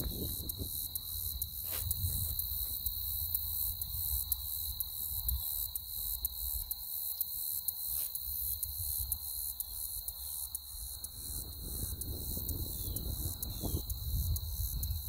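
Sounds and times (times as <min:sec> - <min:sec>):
wind on microphone: 0:00.0 - 0:00.9, 0:01.8 - 0:02.8, 0:11.1 - 0:15.0
faint ticks: 0:00.0 - 0:15.0.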